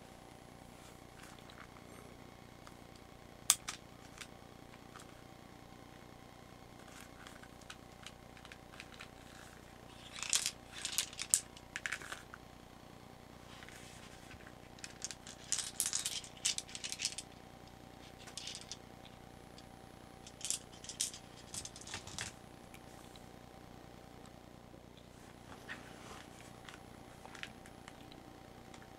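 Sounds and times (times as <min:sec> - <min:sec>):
metal cartridges clinking: 0:09.9 - 0:12.2, 0:14.8 - 0:17.3, 0:18.2 - 0:18.8, 0:20.3 - 0:22.3.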